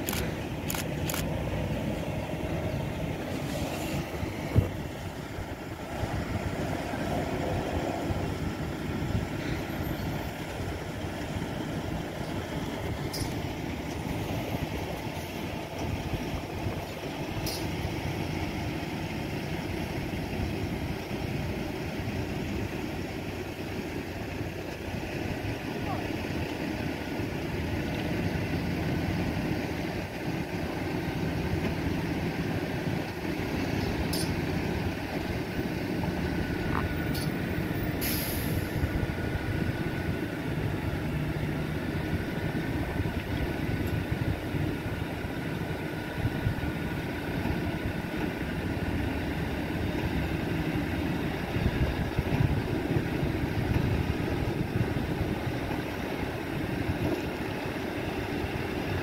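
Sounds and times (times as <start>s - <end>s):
diesel engine running: 0.0s - 59.0s
short hiss: 38.0s - 38.8s.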